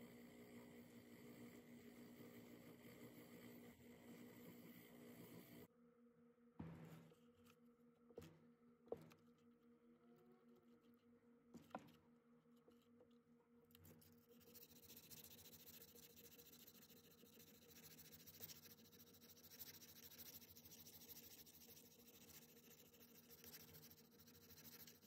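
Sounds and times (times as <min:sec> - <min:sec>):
sanding pad scratching metal: 0:14.4 - 0:25.0.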